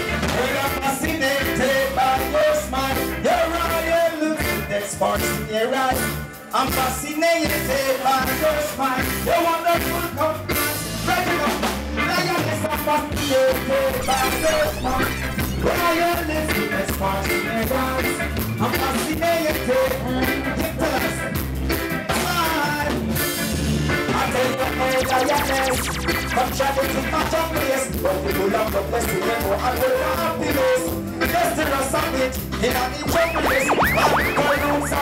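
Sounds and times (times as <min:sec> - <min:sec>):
man singing: 0:00.1 - 0:21.3, 0:24.0 - 0:35.0
reggae band playing: 0:31.0 - 0:35.0.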